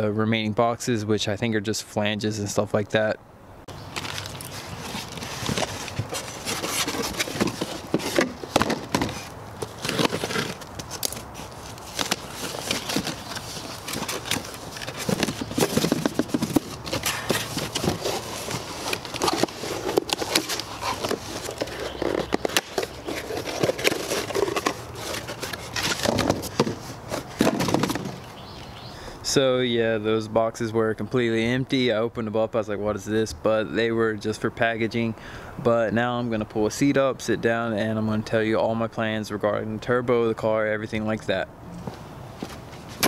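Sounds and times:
cardboard scraping and crackling: 0:03.9 - 0:28.6
knife slitting cardboard: 0:04.6 - 0:28.2.

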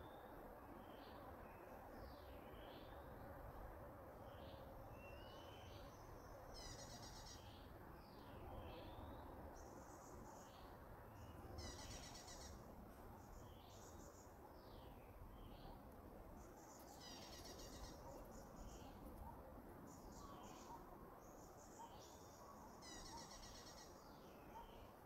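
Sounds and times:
faint birdsong: 0:00.0 - 0:25.0
soft steady background noise: 0:00.0 - 0:25.0
bird trills: 0:11.6 - 0:12.6, 0:16.7 - 0:18.7, 0:22.8 - 0:23.9.

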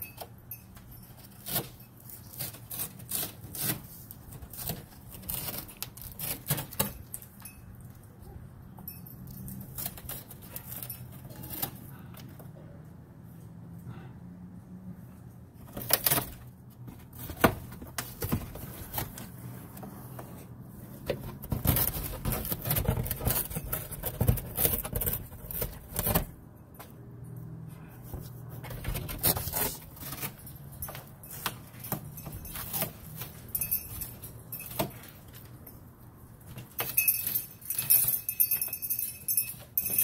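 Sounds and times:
bird tearing at cardboard: 0:01.4 - 0:07.0, 0:21.3 - 0:26.3.

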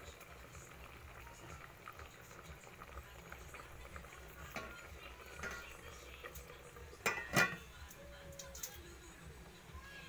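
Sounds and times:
pot bubbling and crackling: 0:00.0 - 0:10.0.

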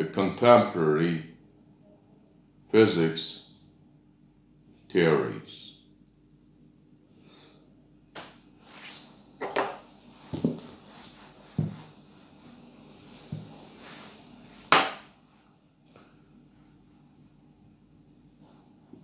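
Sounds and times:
eraser rubbing on whiteboard: 0:10.2 - 0:12.7
whiteboard bumps: 0:11.5 - 0:11.9.

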